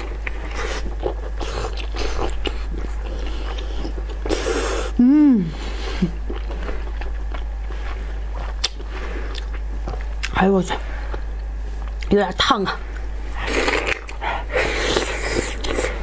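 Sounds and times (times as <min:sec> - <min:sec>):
wet eating and mouth-smacking: 0:00.0 - 0:04.7, 0:06.0 - 0:10.4, 0:12.9 - 0:16.0.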